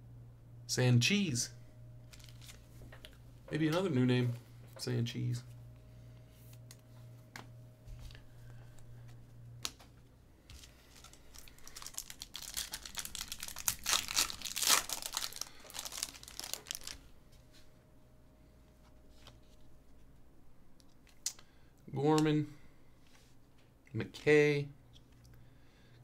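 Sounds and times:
foil wrapper tearing and crinkling: 2.1s - 2.6s, 10.9s - 17.0s.

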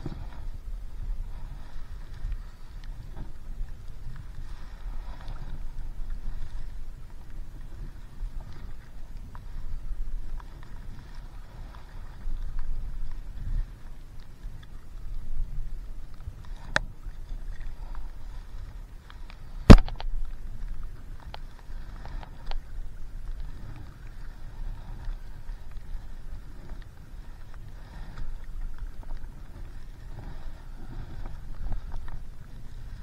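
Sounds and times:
water splashing around paddleboard: 0.0s - 33.0s
wind rumble on microphone: 0.0s - 33.0s
small click: 16.5s - 16.9s, 19.2s - 20.2s.

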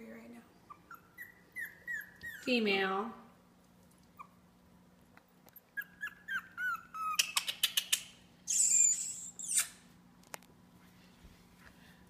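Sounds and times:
puppies whimpering: 0.7s - 2.5s, 5.6s - 7.2s.

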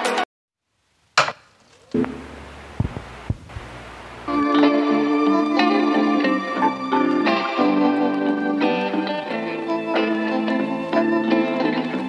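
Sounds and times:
instrumental background music: 4.3s - 12.0s.

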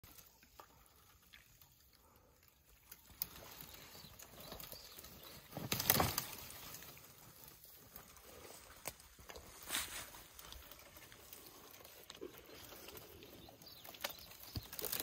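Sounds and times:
branches rustling: 0.1s - 15.0s
wood cracking: 2.8s - 7.1s, 10.3s - 15.0s.

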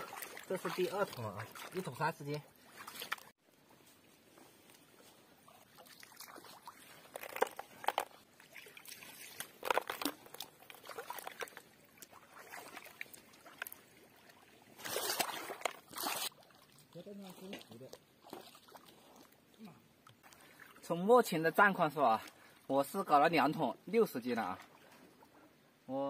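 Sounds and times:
rush of water: 0.0s - 3.3s
pond water splashing: 0.0s - 3.4s, 4.3s - 22.9s, 24.2s - 25.3s.

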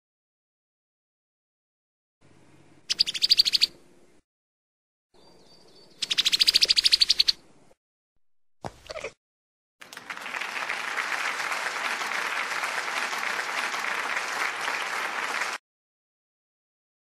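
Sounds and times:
crowd applauding: 9.8s - 15.6s.

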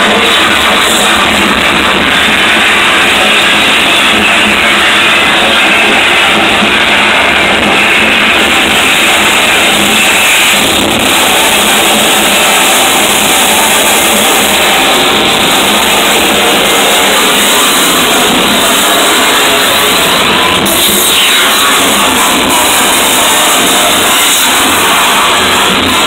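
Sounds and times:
harsh distorted noise music: 0.0s - 26.0s.

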